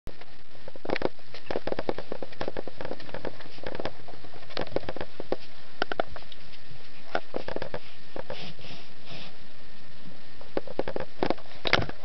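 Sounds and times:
puppies scampering on carpet: 1.3 - 9.4.

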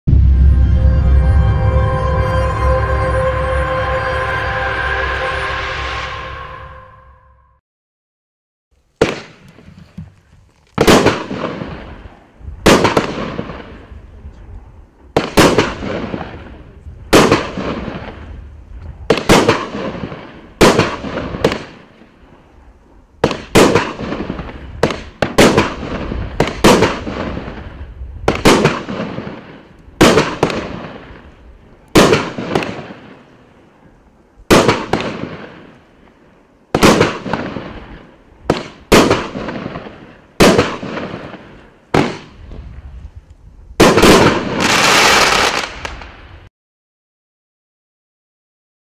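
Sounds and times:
firework bangs: 9.0 - 9.5, 10.8 - 13.9, 15.1 - 18.4, 19.1 - 22.1, 23.2 - 31.3, 31.9 - 33.3, 34.5 - 42.6, 43.8 - 46.3.

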